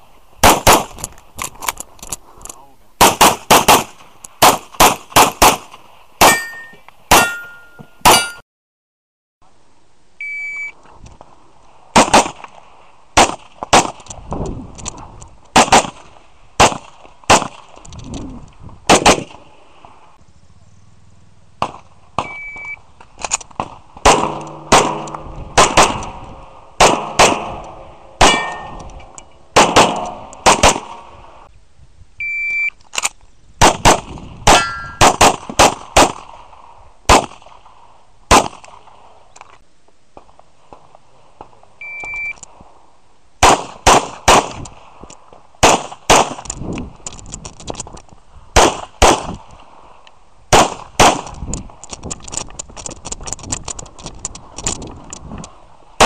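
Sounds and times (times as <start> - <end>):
pistol firing quick shots: 0.4 - 1.0, 3.0 - 8.3, 13.2 - 14.0, 15.6 - 17.7, 18.9 - 19.4, 23.6 - 28.9, 29.5 - 31.2, 33.6 - 36.4, 37.1 - 37.6, 38.3 - 38.8, 43.4 - 44.6, 45.6 - 46.4, 48.6 - 49.4, 50.5 - 51.4
metallic ring of steel target: 6.2 - 8.4, 24.1 - 26.2, 26.9 - 31.1, 34.5 - 35.1.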